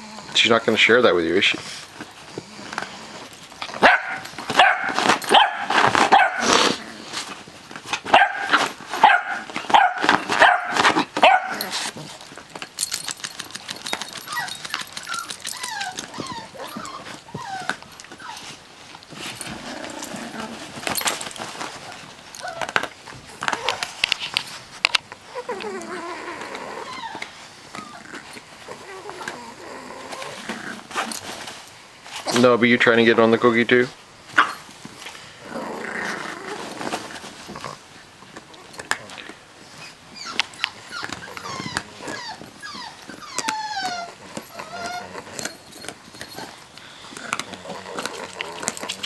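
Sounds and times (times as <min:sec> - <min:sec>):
puppies yipping and barking: 0:03.1 - 0:06.6, 0:08.0 - 0:12.1, 0:12.8 - 0:18.6, 0:39.6 - 0:47.4.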